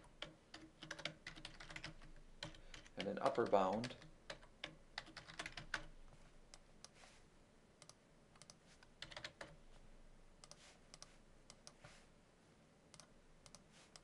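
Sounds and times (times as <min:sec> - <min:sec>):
computer keyboard typing: 0:00.0 - 0:05.9, 0:07.8 - 0:09.6.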